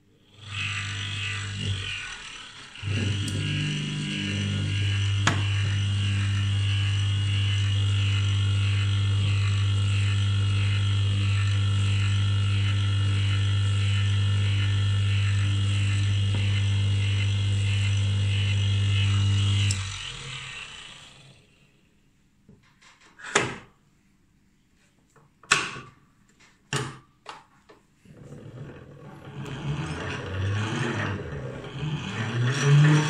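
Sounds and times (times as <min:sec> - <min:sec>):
electric motor humming and whining: 0:00.3 - 0:21.6, 0:28.2 - 0:33.0.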